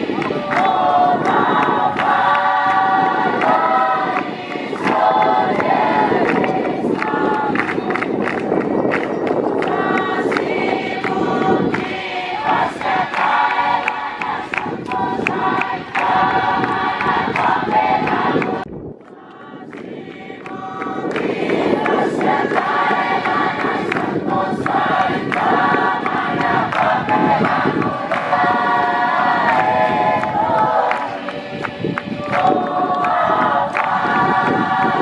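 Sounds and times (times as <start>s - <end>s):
crowd singing: 0.0s - 35.0s.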